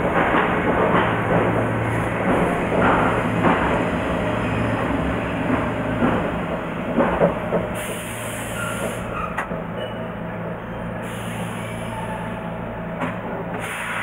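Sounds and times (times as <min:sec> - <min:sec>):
train running rumble and hum: 0:00.0 - 0:14.0
air hiss: 0:13.6 - 0:14.0.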